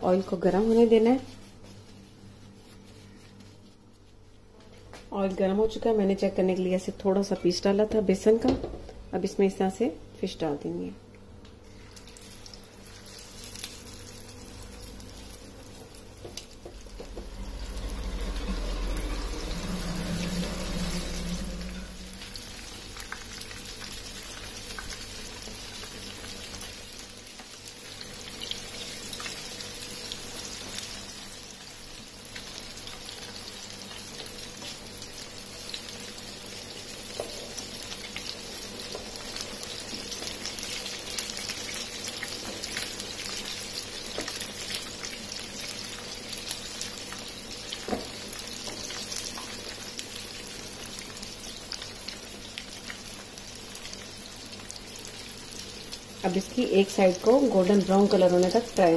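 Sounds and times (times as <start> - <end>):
fish sizzling in hot oil: 11.7 - 58.9.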